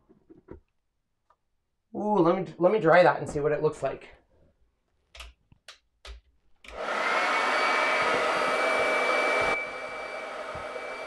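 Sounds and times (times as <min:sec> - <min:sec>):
hot-air dryer blowing with whine: 0:06.7 - 0:11.0.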